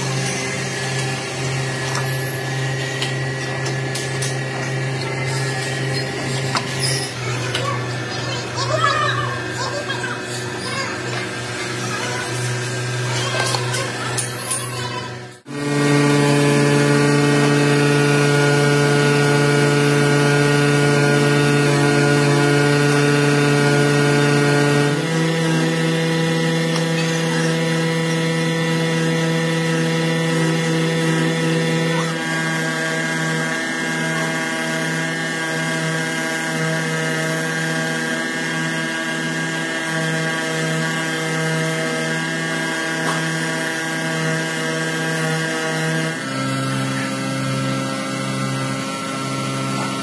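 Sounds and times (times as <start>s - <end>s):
machine humming: 0.0s - 50.0s.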